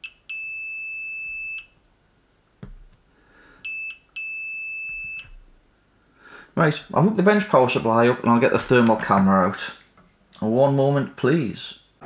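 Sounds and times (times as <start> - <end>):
multimeter beeping: 0.0 - 1.8, 3.6 - 5.4.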